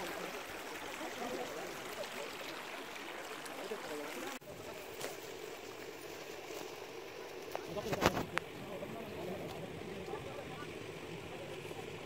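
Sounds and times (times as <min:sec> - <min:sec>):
shallow stream running: 0:00.0 - 0:12.0
faint voices: 0:06.1 - 0:12.0.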